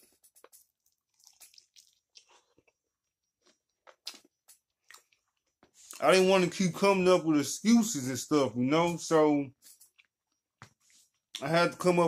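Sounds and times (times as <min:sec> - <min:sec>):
man chewing and crunching food: 0:00.0 - 0:06.2, 0:08.8 - 0:11.6.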